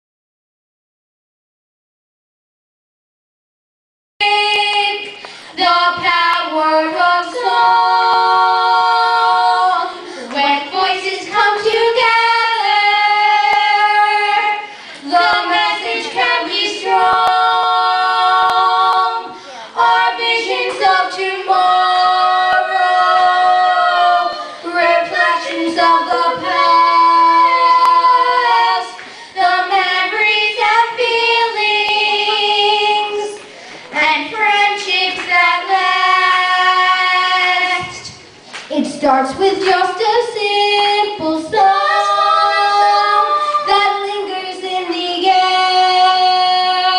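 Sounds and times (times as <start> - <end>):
children singing a duet: 4.2 - 46.9.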